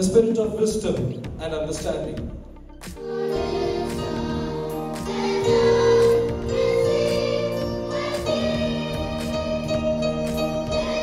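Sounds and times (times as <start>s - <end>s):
electronic keyboard chords: 2.4s - 11.0s
children's choir singing: 3.0s - 11.0s.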